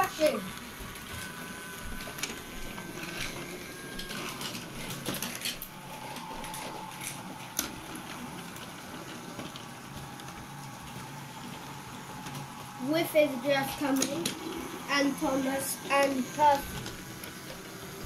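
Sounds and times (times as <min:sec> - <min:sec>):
toy train motors whirring: 0:00.0 - 0:18.0
wheels clicking on wooden track: 0:02.1 - 0:18.0.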